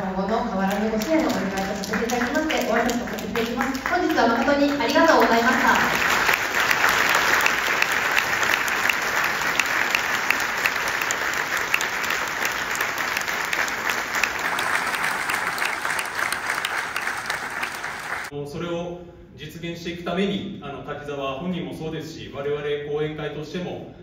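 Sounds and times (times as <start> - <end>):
audience applauding: 0.7 - 18.3.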